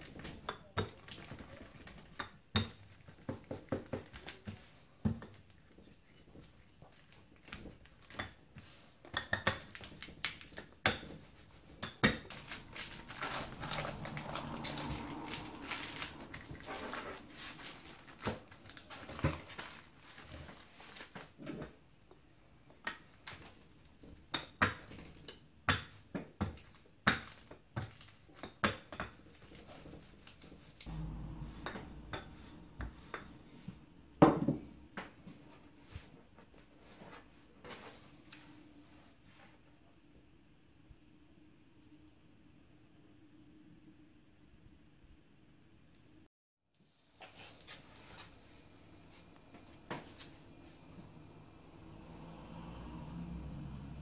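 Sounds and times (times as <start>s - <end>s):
plastic bag rustling: 9.6s - 21.4s.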